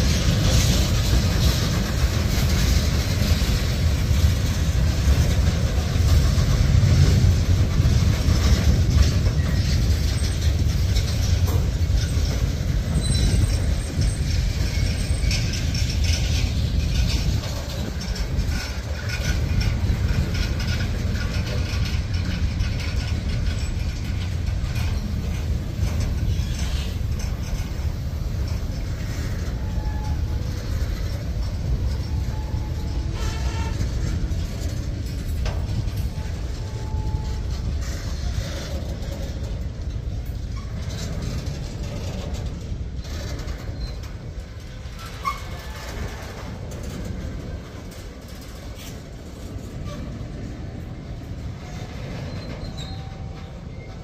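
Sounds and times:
train wheels rumbling on rails: 0.0 - 54.0
wheel clacks: 0.0 - 54.0.

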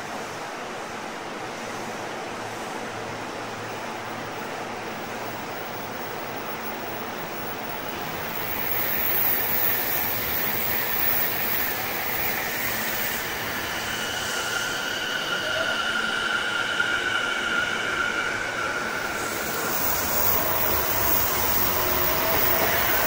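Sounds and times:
hiss of stopped train: 0.0 - 23.0
train running noise: 0.0 - 23.0
train motor whine: 8.0 - 23.0.

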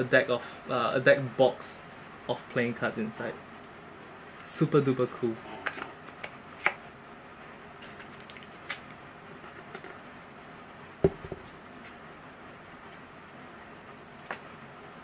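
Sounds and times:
cup knocking on hard surface: 11.0 - 11.4.

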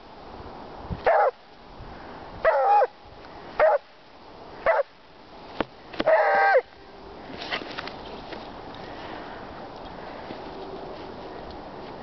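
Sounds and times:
dog barking: 1.1 - 1.4, 2.4 - 2.9, 3.6 - 3.8, 4.6 - 4.9.

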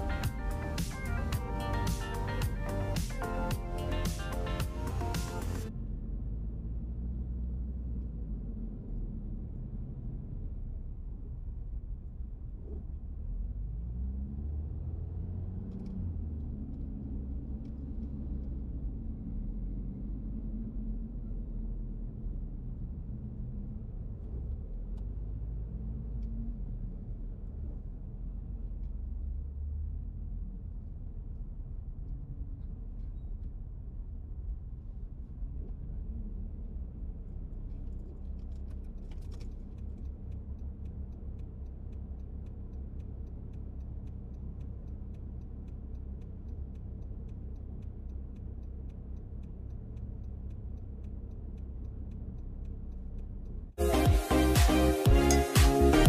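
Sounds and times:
car engine and tyres rumbling: 0.0 - 56.0
quick even ticking: 38.0 - 55.8.

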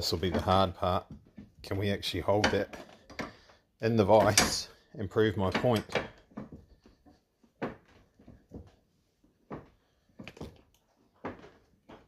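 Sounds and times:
bench vise metal clunks: 4.1 - 4.8.

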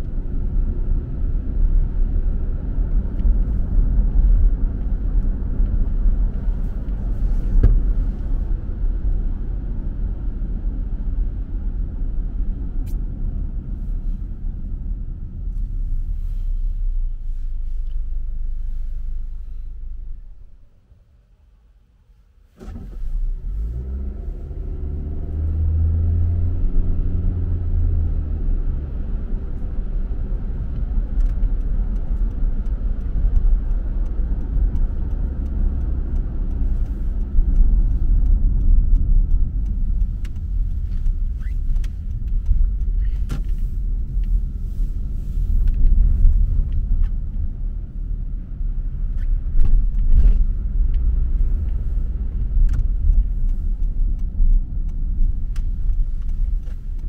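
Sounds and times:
road rumble with tyre hiss: 0.0 - 57.0
car engine accelerating: 22.6 - 57.0.

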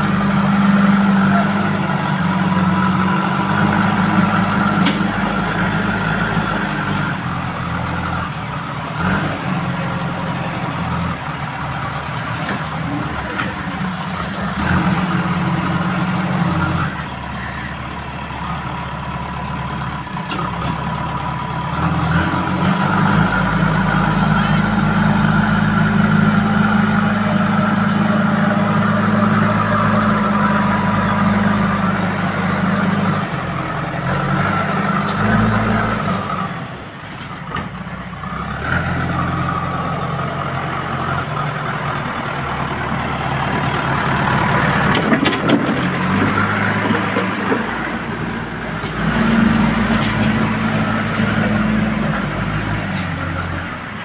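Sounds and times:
diesel engine revving: 0.0 - 54.0.

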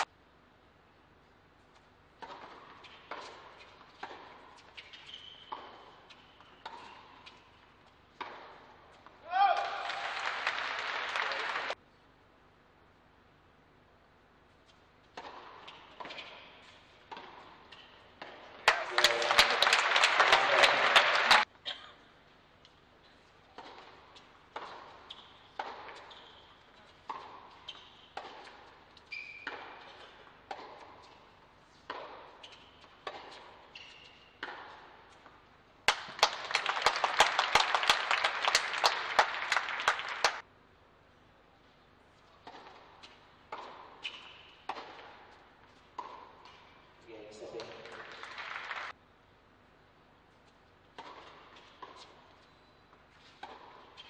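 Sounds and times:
tennis ball strikes and bounces: 2.1 - 7.4, 8.1 - 9.7, 15.0 - 19.2, 23.6 - 36.4, 42.3 - 46.7, 50.9 - 54.0
shoe squeaks: 4.6 - 7.5, 25.0 - 28.2, 29.0 - 30.2, 32.4 - 33.0, 33.6 - 34.4, 44.0 - 44.6, 52.3 - 54.0
loud applause: 9.3 - 11.8, 18.6 - 21.4, 36.2 - 40.4, 47.8 - 48.9.

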